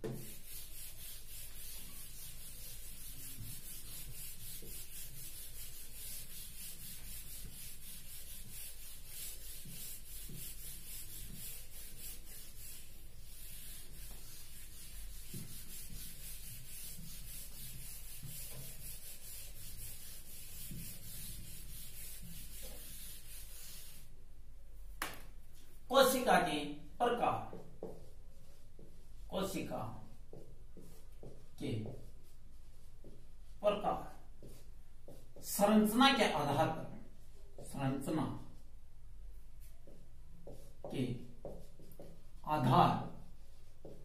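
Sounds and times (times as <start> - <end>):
whiteboard eraser rubbing: 0.0 - 24.1.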